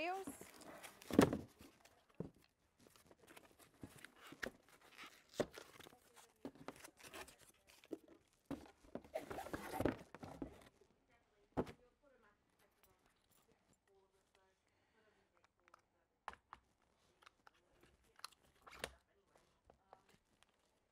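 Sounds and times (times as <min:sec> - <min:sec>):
cardboard packaging rustling: 0:00.1 - 0:10.8.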